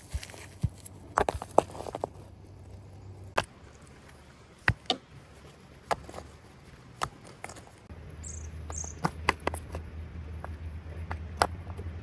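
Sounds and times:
stones knocking together: 0:00.0 - 0:02.4, 0:03.3 - 0:07.9, 0:08.6 - 0:09.8.

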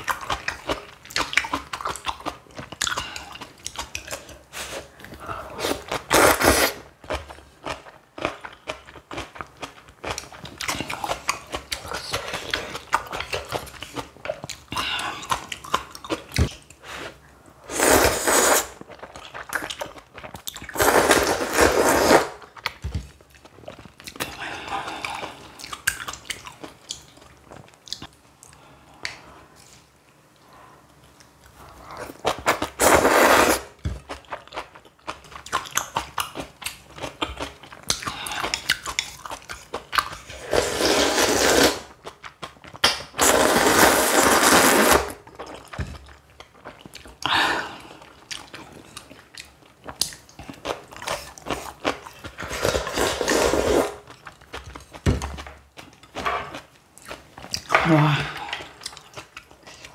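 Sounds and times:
chewing and crunching: 0:00.0 - 0:05.2, 0:06.9 - 0:16.8, 0:18.8 - 0:20.8, 0:22.4 - 0:28.6, 0:34.0 - 0:40.4, 0:41.9 - 0:43.2, 0:45.2 - 0:57.7, 0:58.4 - 0:59.9
loud slurping: 0:17.7 - 0:18.8, 0:32.8 - 0:33.7, 0:40.3 - 0:41.9, 0:43.2 - 0:45.2, 0:52.5 - 0:54.0.

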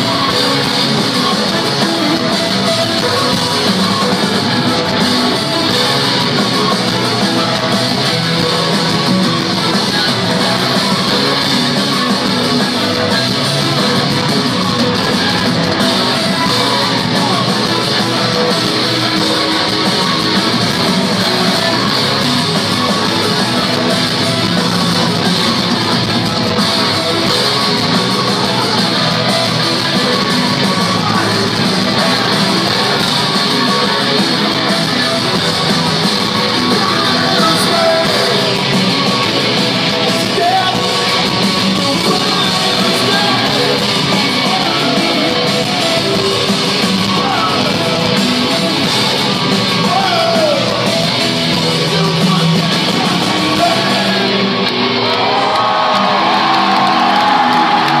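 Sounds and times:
electric guitars: 0:00.0 - 0:58.0
industrial rock band playing: 0:00.0 - 0:58.0
person singing: 0:26.9 - 0:54.4.

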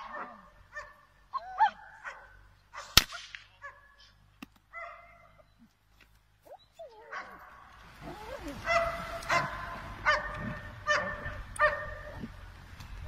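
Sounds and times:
dog barking: 0:00.0 - 0:03.0, 0:03.6 - 0:04.0, 0:04.7 - 0:05.4, 0:06.9 - 0:12.3
dog whining: 0:06.4 - 0:07.3.

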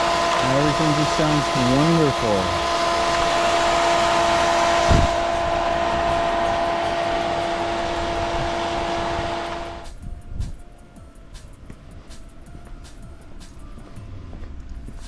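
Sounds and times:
pool pump whoosh and whine: 0:00.0 - 0:15.0
thump: 0:04.9 - 0:05.2.

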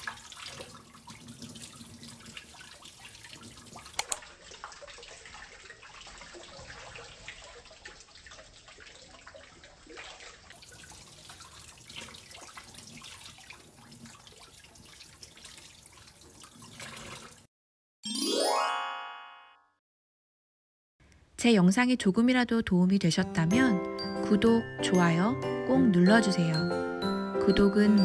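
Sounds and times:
tap water splashing into a sink: 0:00.0 - 0:17.5.

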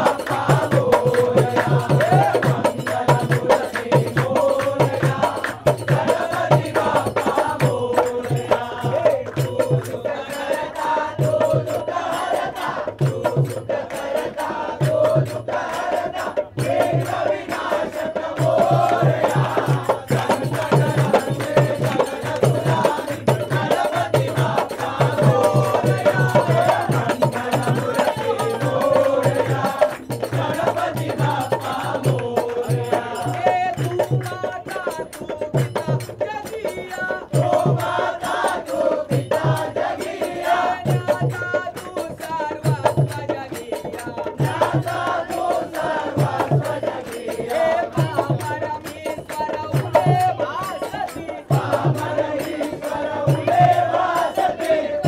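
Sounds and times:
chanted singing: 0:00.0 - 0:55.0
steady drum beat: 0:00.0 - 0:55.0.

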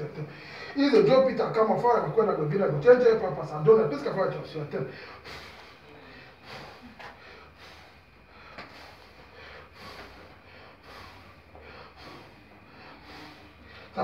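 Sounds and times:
man puffing breath: 0:06.4 - 0:14.0.

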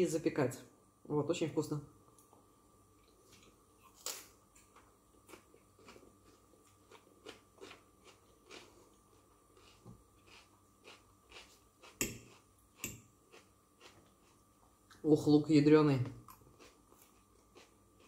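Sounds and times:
person chewing crunchy onion: 0:03.0 - 0:14.6, 0:16.2 - 0:18.0.

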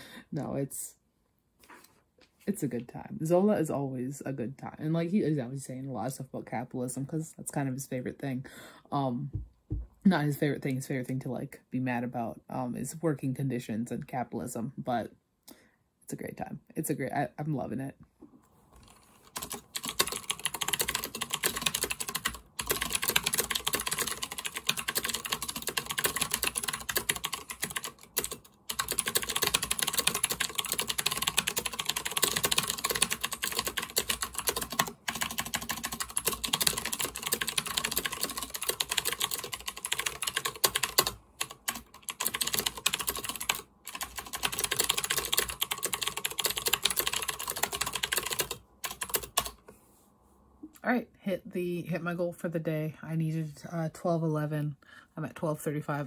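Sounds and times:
fast typing on keyboard: 0:18.8 - 0:49.6.

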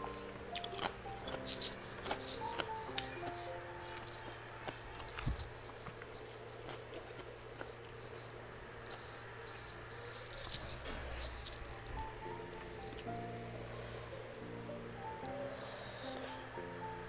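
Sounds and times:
wet chewing and smacking: 0:00.0 - 0:12.1.

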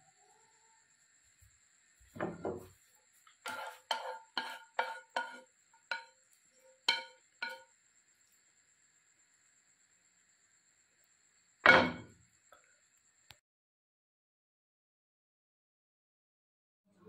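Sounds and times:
utensil scraping frying pan: 0:02.2 - 0:07.7.

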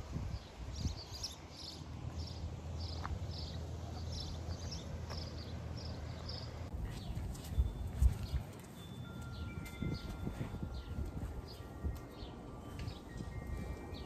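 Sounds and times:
footsteps on asphalt: 0:02.0 - 0:11.7.

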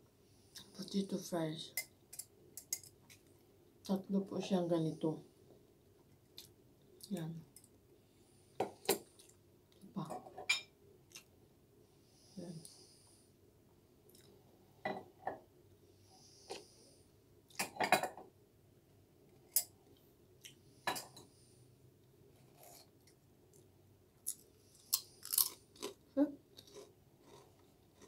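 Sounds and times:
crisp crunching between teeth: 0:24.2 - 0:28.0.

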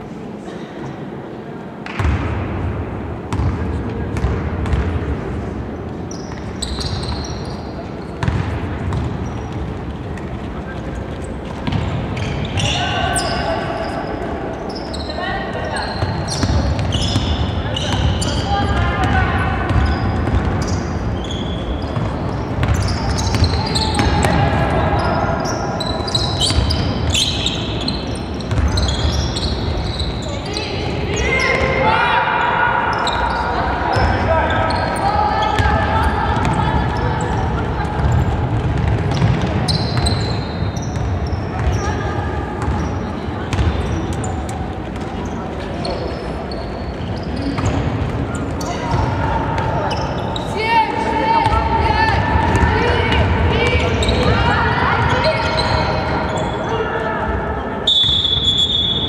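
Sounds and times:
sneakers squeaking on floor: 0:03.3 - 0:32.0, 0:32.9 - 0:59.0
basketball bouncing on wooden floor: 0:08.2 - 0:09.1.

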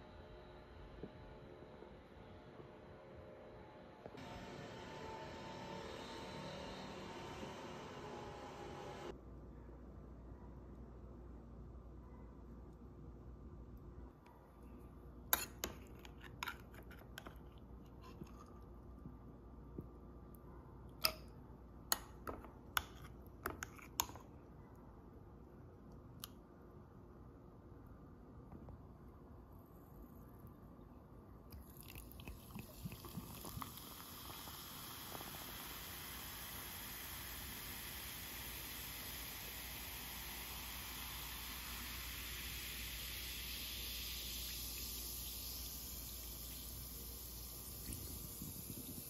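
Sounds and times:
fizzing: 0:31.6 - 0:49.0
water pouring into a glass: 0:31.6 - 0:49.0.

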